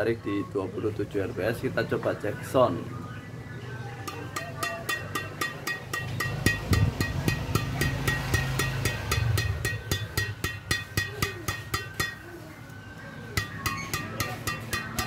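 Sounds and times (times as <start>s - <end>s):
racket strings tapped pinging: 4.0s - 12.4s, 13.3s - 15.0s.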